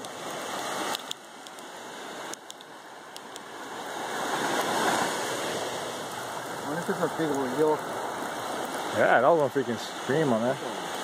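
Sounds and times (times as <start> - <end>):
faint clicks: 0.0 - 1.7, 2.3 - 3.5
small waves washing onto beach: 0.0 - 11.0.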